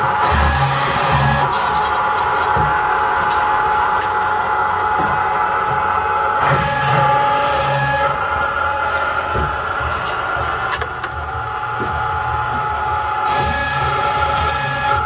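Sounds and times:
cold saw cutting steel: 0:06.3 - 0:11.0, 0:11.6 - 0:15.0.

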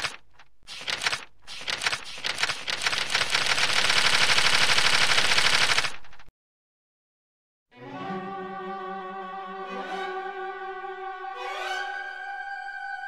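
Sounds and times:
rapid rattle of clicks: 0:00.0 - 0:06.3.

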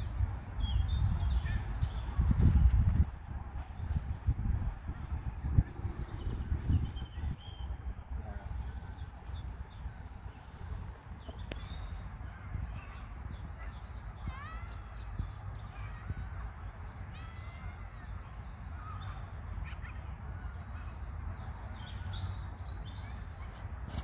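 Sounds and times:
steady low rumble: 0:00.0 - 0:14.2
songbirds chirping: 0:00.0 - 0:24.0.

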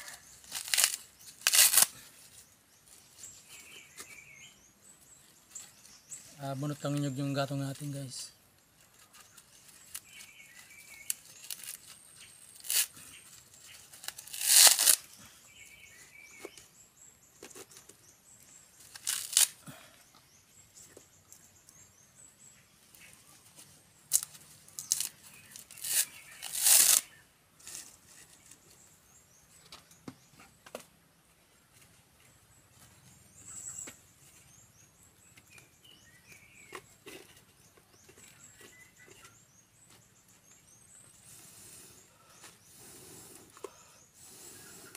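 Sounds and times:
coconut husk tearing: 0:00.0 - 0:02.2, 0:09.0 - 0:15.1, 0:18.8 - 0:19.9, 0:24.1 - 0:28.4.

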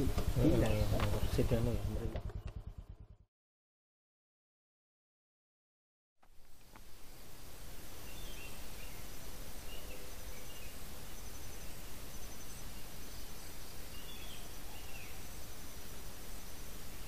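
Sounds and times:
bird chirps: 0:00.0 - 0:03.2, 0:08.0 - 0:16.2
pulsing insect trill: 0:06.9 - 0:17.0.

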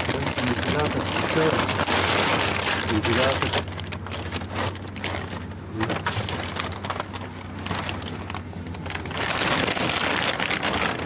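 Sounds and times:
low steady hum: 0:00.0 - 0:11.0
plastic film crinkling: 0:00.0 - 0:11.0.

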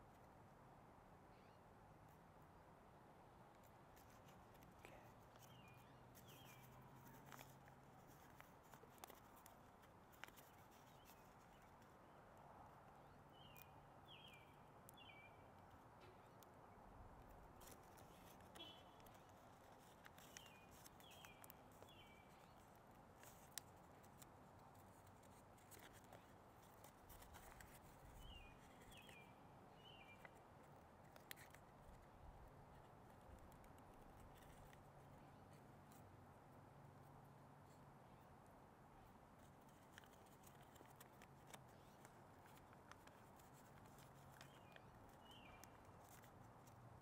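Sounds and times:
bird chirping: 0:05.4 - 0:07.5, 0:13.0 - 0:16.3, 0:18.0 - 0:22.7, 0:27.4 - 0:30.4, 0:44.3 - 0:46.2.

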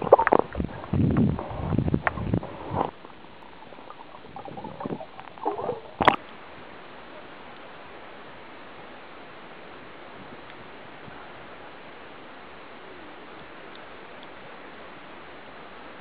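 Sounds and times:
water sloshing and gurgling: 0:00.0 - 0:07.4
faint steady hiss: 0:00.0 - 0:16.0
knocks and bubbling: 0:03.8 - 0:06.2.

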